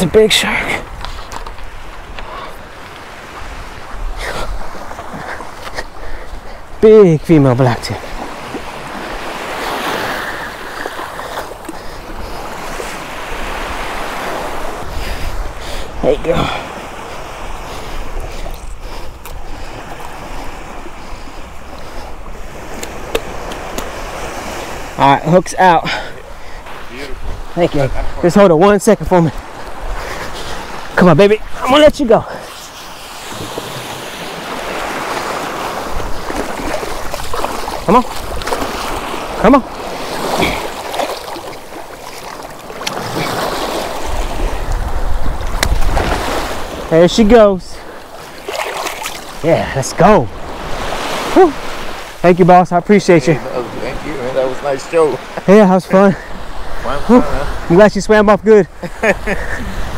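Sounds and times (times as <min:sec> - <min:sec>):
surf washing on beach: 0:00.0 - 0:59.9
wind buffeting microphone: 0:26.2 - 0:28.3, 0:33.2 - 0:46.9
wind rumble on microphone: 0:44.0 - 0:46.8.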